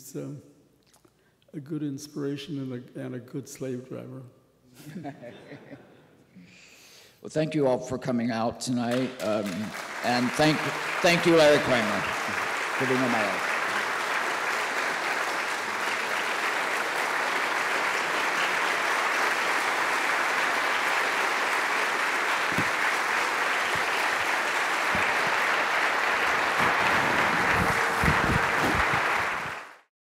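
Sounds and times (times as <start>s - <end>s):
audience applauding: 8.9s - 29.9s.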